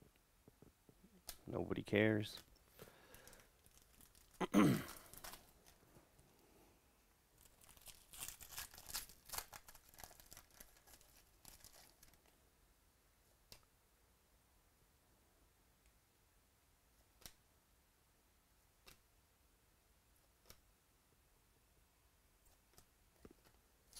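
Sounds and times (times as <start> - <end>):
foil wrapper tearing and crinkling: 3.1 - 5.8, 7.4 - 12.3.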